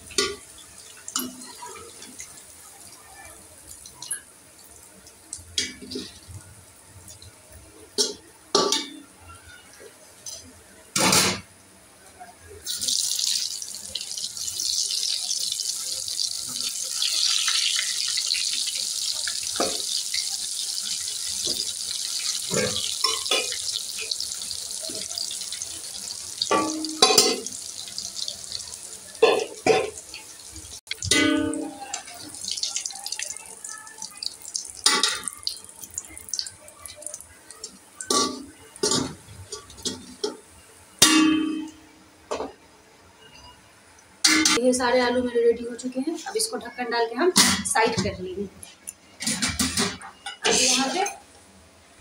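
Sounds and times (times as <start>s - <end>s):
metal spoon clanking on pots: 8.0s - 9.0s, 22.5s - 24.2s, 26.4s - 27.6s, 29.2s - 30.0s, 30.9s - 32.2s
potatoes sizzling in oil: 12.6s - 38.7s.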